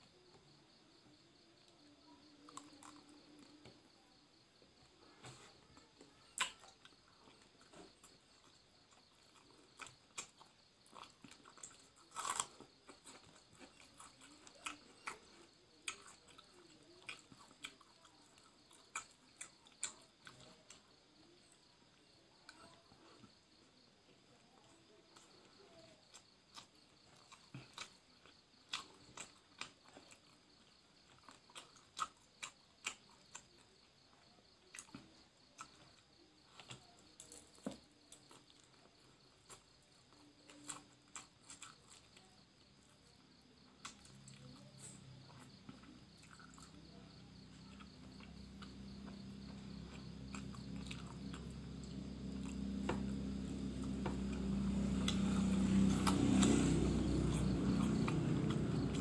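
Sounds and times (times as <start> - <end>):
passing vehicle engine drone: 51.9 - 59.0.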